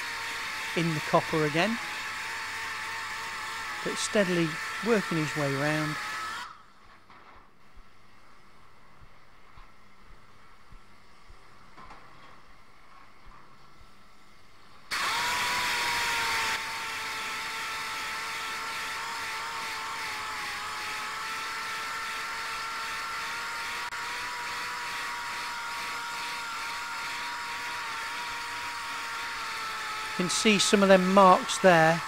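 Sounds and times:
sander whining and hissing: 0:00.0 - 0:06.6, 0:14.9 - 0:32.0.

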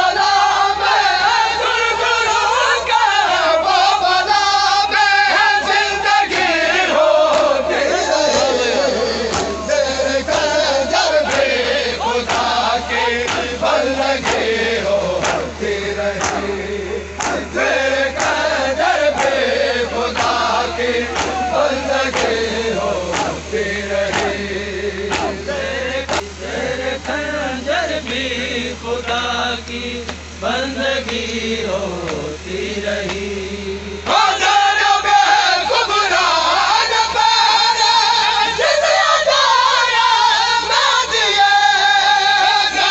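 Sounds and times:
crowd of men chanting: 0:00.0 - 0:42.9
sharp rhythmic beats: 0:05.4 - 0:28.4.

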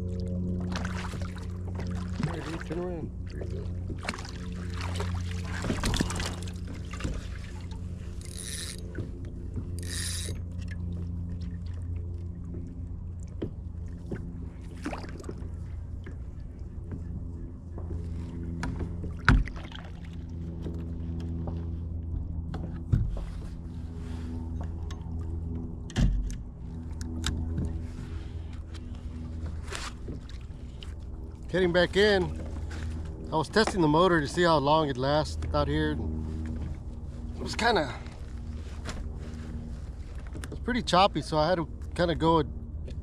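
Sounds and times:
electric motor humming: 0:09.7 - 0:10.5.

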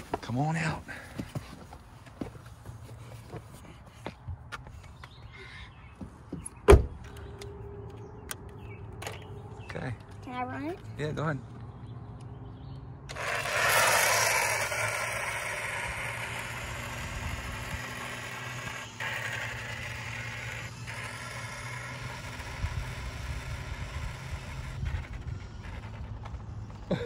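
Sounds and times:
small tyres rolling on asphalt: 0:12.5 - 0:27.0
toy motorcycle electric whirring: 0:13.1 - 0:27.0.

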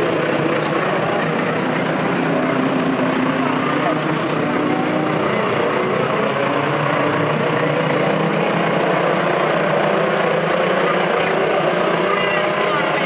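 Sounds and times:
racing truck engines: 0:00.0 - 0:13.0.

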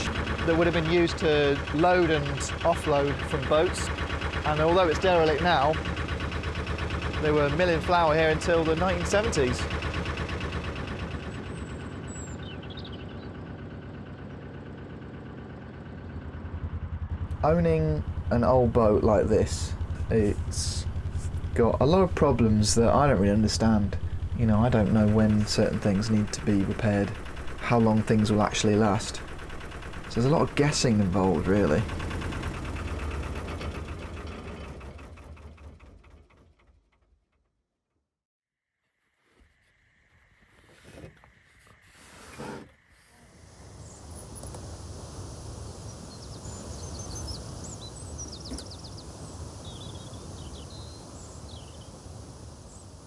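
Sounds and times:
diesel engine chugging: 0:00.0 - 0:37.5, 0:42.5 - 0:52.9.

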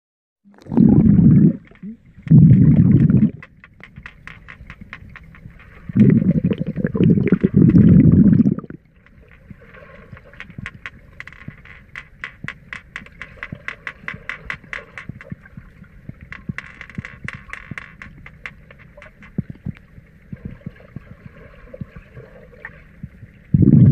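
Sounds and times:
muffled underwater rushing: 0:00.5 - 0:11.2, 0:18.1 - 0:23.9
sharp underwater clicks: 0:00.6 - 0:21.1.

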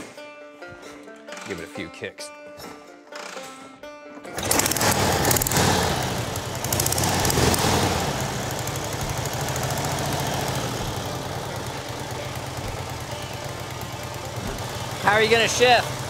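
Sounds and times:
motorcycle engine revving and idling: 0:04.4 - 0:16.0.

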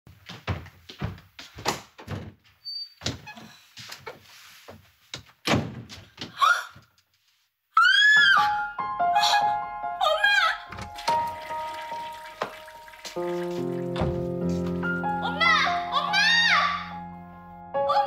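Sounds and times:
woman screaming: 0:07.8 - 0:08.5, 0:15.4 - 0:16.9.

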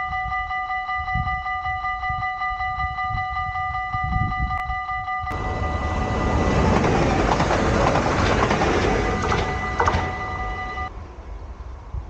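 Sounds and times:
level-crossing bell ringing: 0:00.0 - 0:10.9
train passing on rails: 0:05.0 - 0:12.0.

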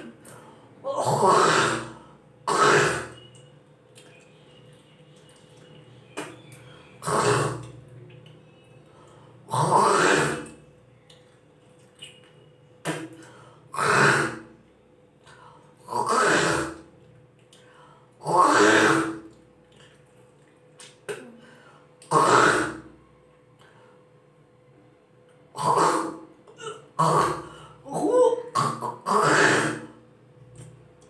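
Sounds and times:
woman gagging: 0:26.5 - 0:26.9, 0:27.8 - 0:28.6.

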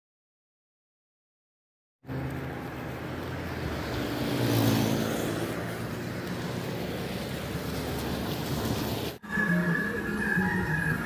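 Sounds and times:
vehicle engines running: 0:02.0 - 0:11.0
vehicle passing: 0:02.0 - 0:11.0
tyres hissing on wet road: 0:02.1 - 0:09.2.

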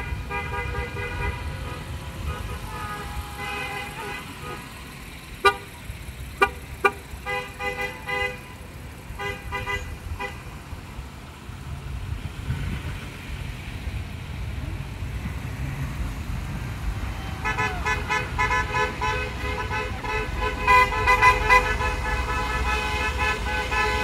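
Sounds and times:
car horn beeping: 0:00.0 - 0:10.5, 0:17.3 - 0:24.0
cars driving slowly past: 0:00.0 - 0:24.0.

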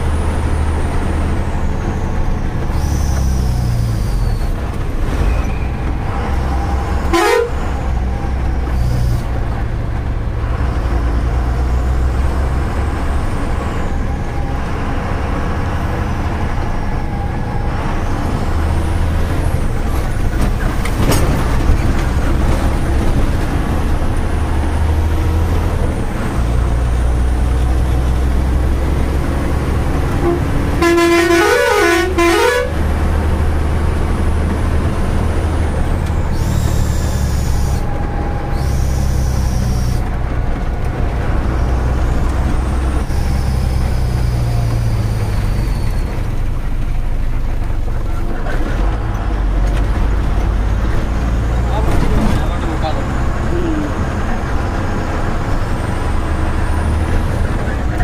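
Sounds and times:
truck diesel engine drone: 0:00.0 - 0:58.0
horn blast rising and falling: 0:06.3 - 0:07.9, 0:28.9 - 0:33.1
truck horn toot: 0:06.9 - 0:07.9, 0:30.1 - 0:33.1.

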